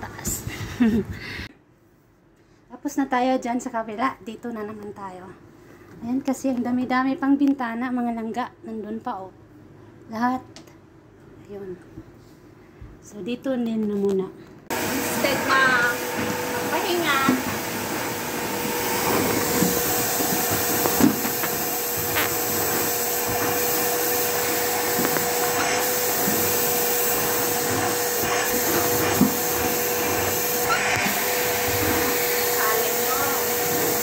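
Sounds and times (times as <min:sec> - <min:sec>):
vacuum cleaner motor whine: 0:14.7 - 0:34.0.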